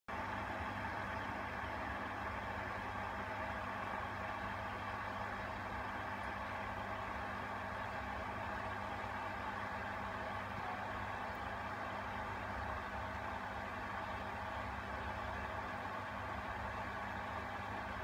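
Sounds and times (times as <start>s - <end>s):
aquarium pump humming: 0.1s - 18.0s.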